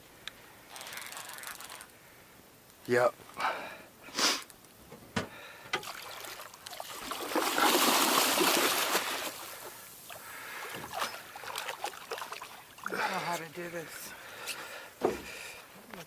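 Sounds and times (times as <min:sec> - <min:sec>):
fish thrashing and splashing: 0:05.8 - 0:13.2.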